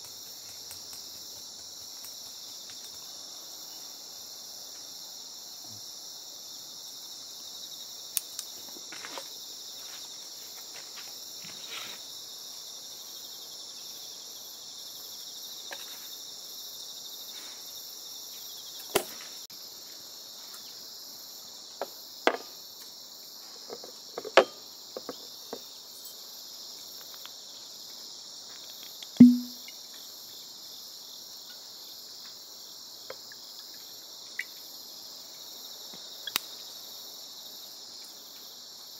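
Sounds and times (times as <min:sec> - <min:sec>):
insects chirring: 0:00.0 - 0:38.9
sharp knock with low ring: 0:29.2 - 0:29.6.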